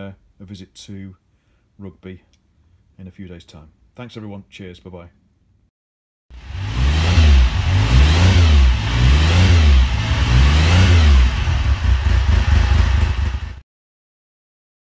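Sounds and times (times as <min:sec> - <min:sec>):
motorcycle engine revving: 0:06.3 - 0:13.6.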